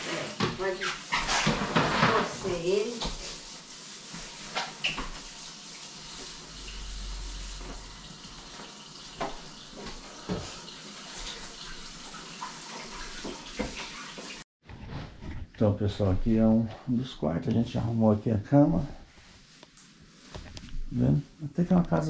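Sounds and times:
water running from a tap: 0.0s - 14.5s.

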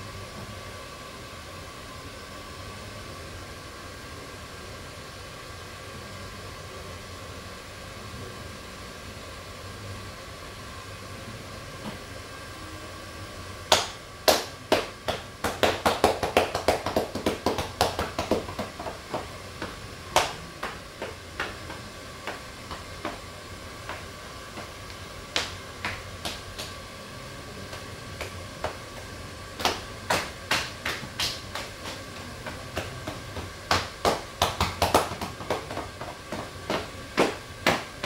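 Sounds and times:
hands slapping on a back: 13.7s - 23.2s, 29.6s - 37.9s.

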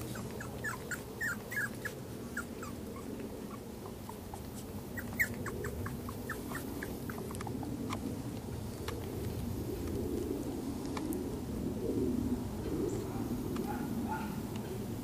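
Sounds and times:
puppies whimpering and yipping: 0.0s - 8.4s.

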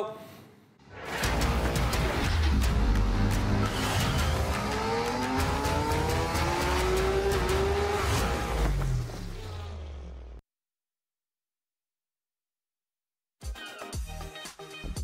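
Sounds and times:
music with heavy bass beat: 1.2s - 9.4s
motorcycle engine accelerating: 1.2s - 10.4s.

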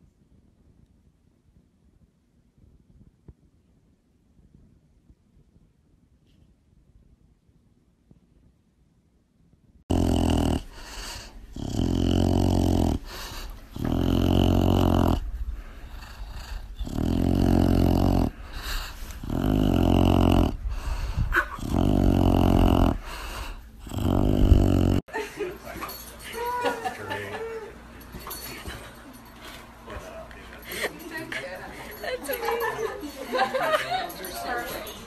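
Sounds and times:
dog growling grunts: 9.9s - 25.0s.

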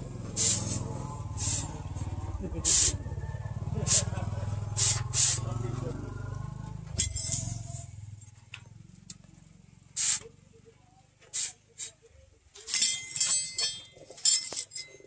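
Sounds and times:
hot steel hissing in water: 0.4s - 1.7s, 4.8s - 5.4s, 10.0s - 10.3s, 11.3s - 12.0s.

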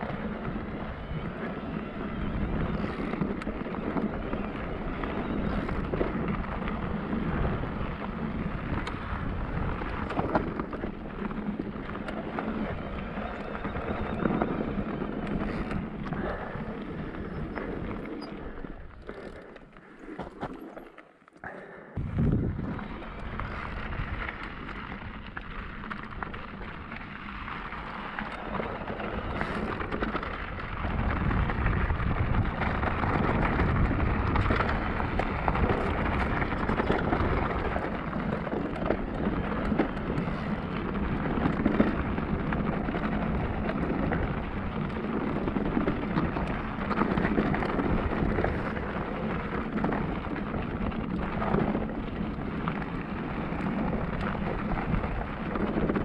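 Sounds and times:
bike rattling and knocking: 0.0s - 19.6s, 22.0s - 56.0s
bike tyres crunching over ground: 0.0s - 56.0s
low rumble: 21.4s - 25.4s.

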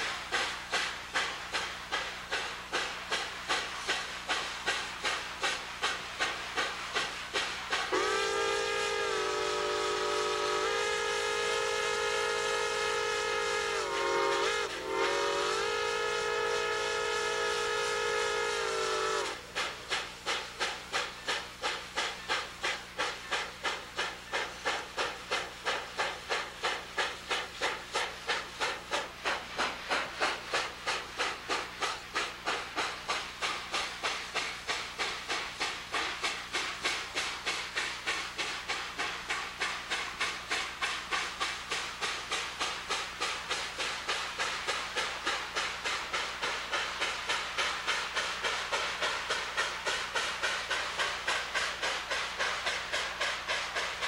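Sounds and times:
steam engine exhaust chuffing: 0.0s - 54.0s
steam locomotive whistle: 7.9s - 19.5s.

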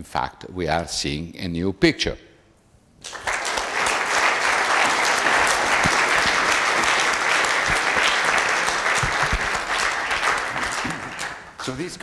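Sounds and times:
audience applauding: 3.0s - 11.8s.

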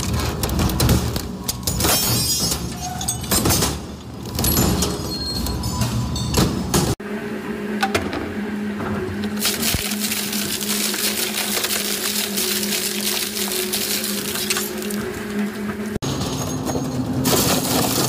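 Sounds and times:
steel plate grinding and crackling: 9.3s - 18.0s.

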